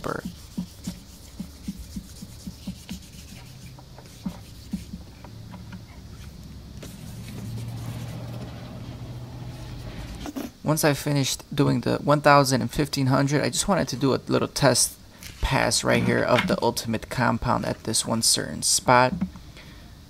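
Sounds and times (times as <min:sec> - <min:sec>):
sandpaper strokes on plastic: 0:00.0 - 0:05.2, 0:06.2 - 0:10.2
low steady hum: 0:00.0 - 0:20.0.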